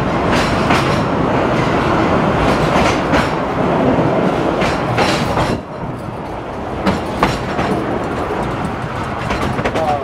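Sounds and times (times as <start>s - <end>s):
train rumbling in tunnel: 0.0s - 10.0s
wheels clicking over rail joints: 4.5s - 10.0s.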